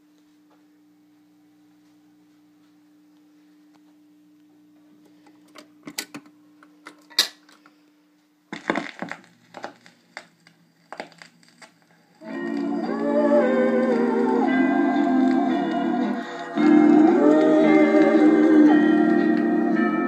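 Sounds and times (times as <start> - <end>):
faint steady hum: 0.0 - 20.0
record playing: 8.5 - 20.0.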